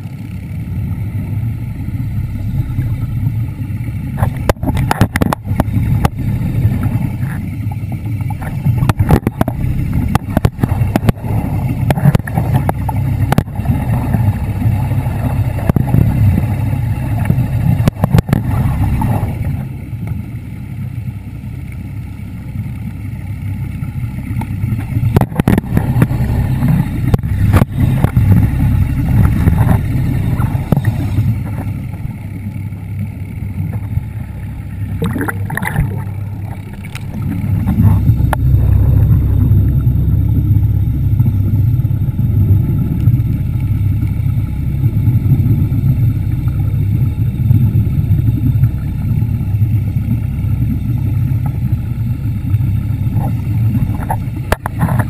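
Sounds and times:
underwater scooter rumble: 0.0 - 55.0
water rushing: 0.0 - 55.0.

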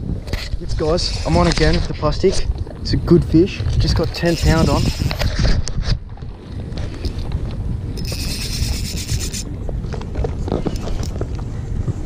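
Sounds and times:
wind rumbling on microphone: 0.0 - 12.0
fishing reel whirring: 4.1 - 5.3, 8.0 - 9.5.

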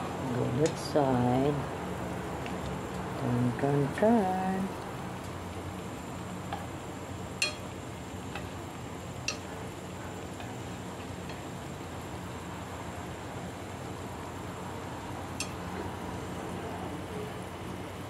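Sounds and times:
sauce sizzling and bubbling: 4.8 - 18.0.

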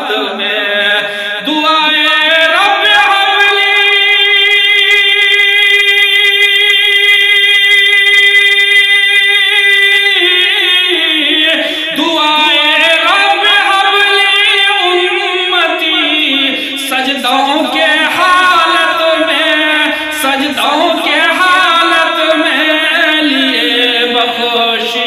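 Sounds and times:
man singing devotional song: 0.0 - 25.0.

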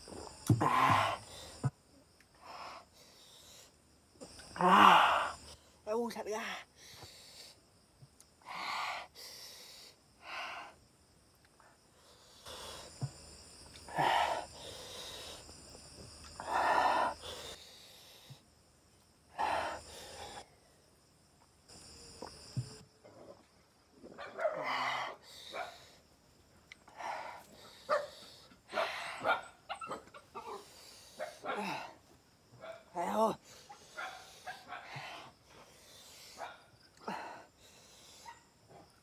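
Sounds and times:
man hissing and puffing breaths: 0.0 - 5.8, 6.7 - 10.9, 11.7 - 18.6, 19.3 - 20.8, 24.6 - 26.1, 26.8 - 29.3, 30.5 - 32.1, 33.3 - 38.6.

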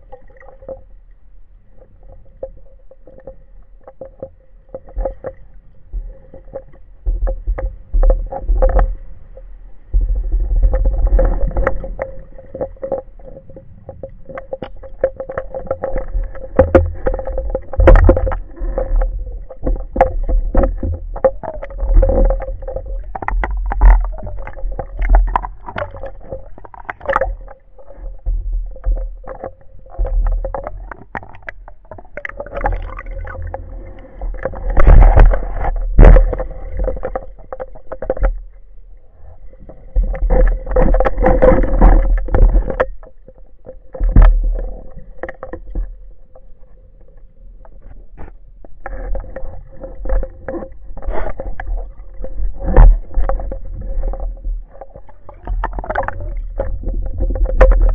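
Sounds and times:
underwater water rumbles: 0.0 - 57.9
sharp clicks and knocks: 13.9 - 38.4, 40.0 - 46.0, 47.6 - 57.9.

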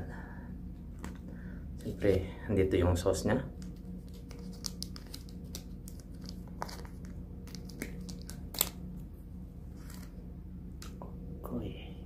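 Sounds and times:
steady low hum: 0.0 - 12.0
plastic sachet crinkling and tearing: 4.0 - 8.8.

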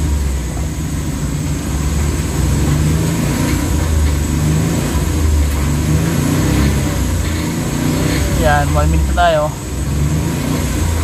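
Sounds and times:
car engine idling: 0.0 - 11.0
clanking rattle: 0.1 - 9.8.

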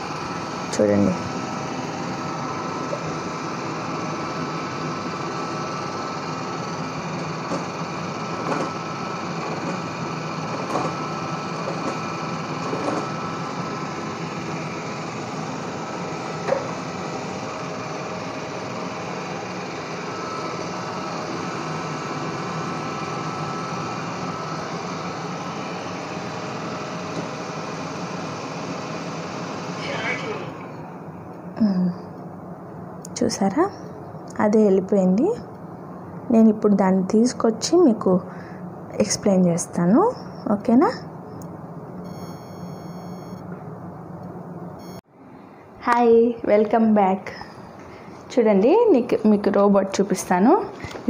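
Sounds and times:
robot vacuum motor hum: 0.0 - 30.8.

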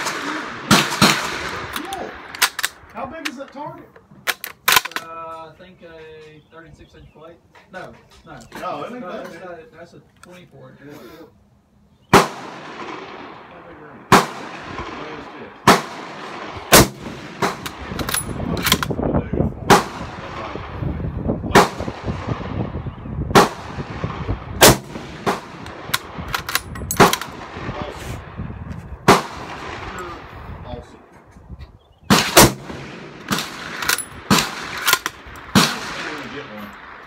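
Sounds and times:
rifle shots: 0.0 - 2.9, 12.1 - 19.0, 19.7 - 20.7, 21.5 - 22.6, 23.3 - 27.9, 29.0 - 30.2, 32.1 - 37.0.

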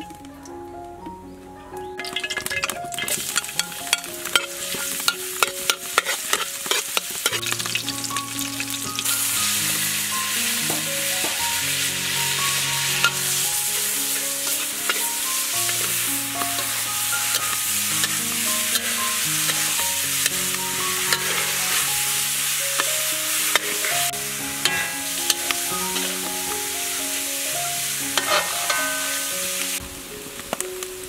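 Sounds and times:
soft background music: 0.0 - 31.0
garlic sizzling in hot oil: 2.0 - 31.0.

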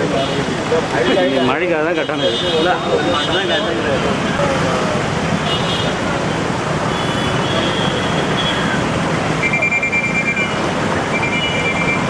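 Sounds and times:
engines and motor scooters: 0.0 - 12.0
vehicle horns tooting: 1.0 - 3.8, 5.4 - 6.0, 6.8 - 8.8, 9.4 - 12.0.

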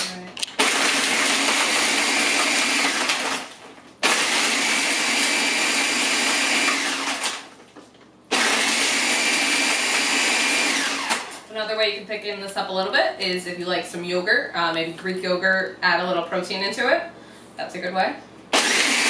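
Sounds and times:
blender crushing ice: 0.5 - 7.6, 8.3 - 11.5, 18.5 - 19.0.

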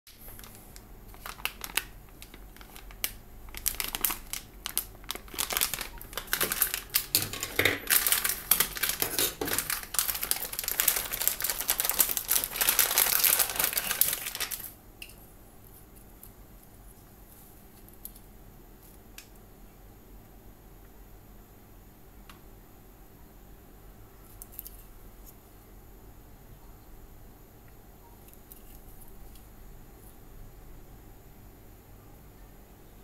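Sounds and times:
anti-static bag crinkling: 0.1 - 18.1.

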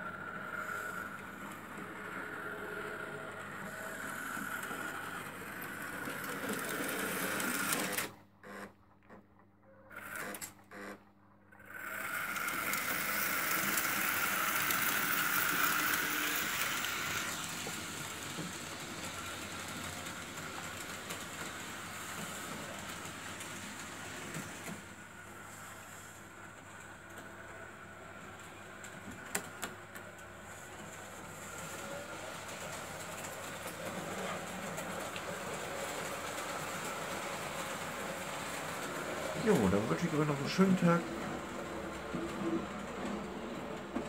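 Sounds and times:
model train motors whirring: 0.0 - 8.7, 9.4 - 44.0.

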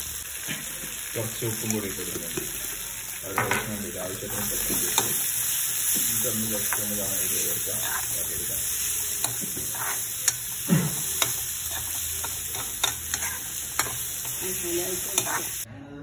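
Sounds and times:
onions sizzling in hot oil: 0.0 - 15.7
steel spoon scraping pan: 6.6 - 15.7.

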